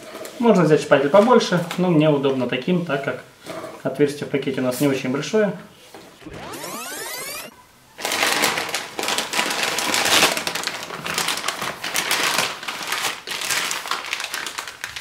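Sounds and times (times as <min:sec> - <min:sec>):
plastic bag crinkling: 0:08.0 - 0:15.0.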